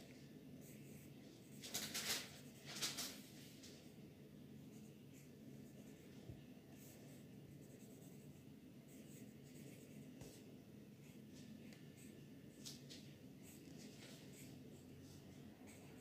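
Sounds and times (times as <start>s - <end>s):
marker scratching on paper: 6.8s - 10.4s, 13.4s - 16.0s.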